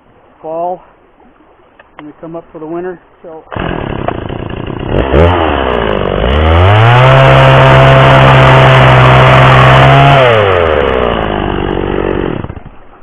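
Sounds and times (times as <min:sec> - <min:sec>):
chainsaw revving and cutting board: 0:03.5 - 0:12.8.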